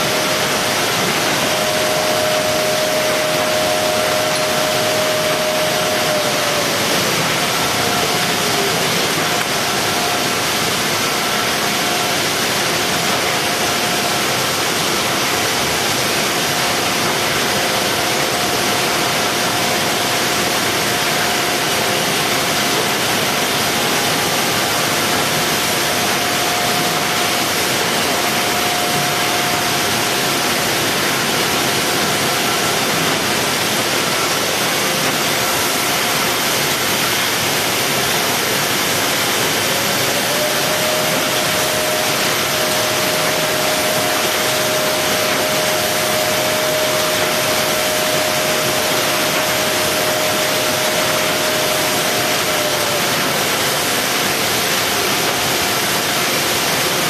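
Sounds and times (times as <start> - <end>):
factory machinery noise: 0.0 - 57.0.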